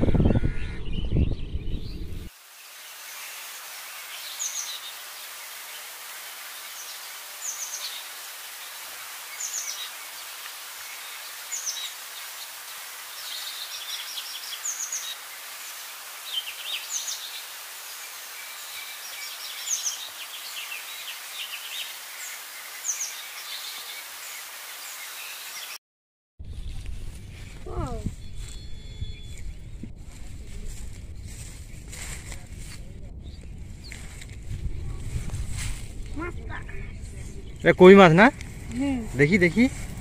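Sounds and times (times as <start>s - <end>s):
birds chattering: 0.0s - 2.3s
outdoor hiss: 2.3s - 25.8s, 37.6s - 40.0s.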